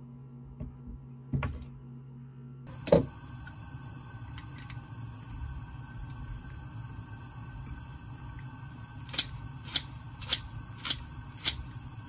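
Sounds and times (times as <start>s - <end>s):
boiling water hissing: 2.7s - 12.0s.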